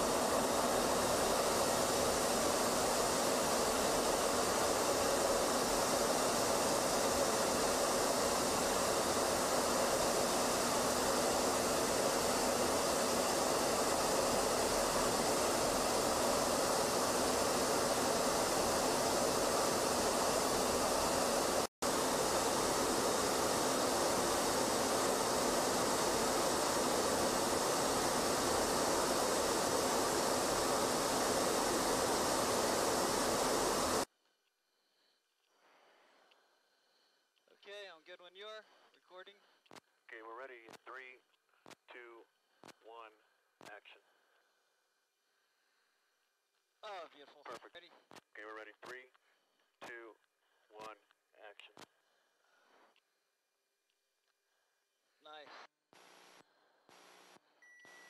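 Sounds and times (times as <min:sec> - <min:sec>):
jet aircraft roar in flight: 0:00.0 - 0:34.1.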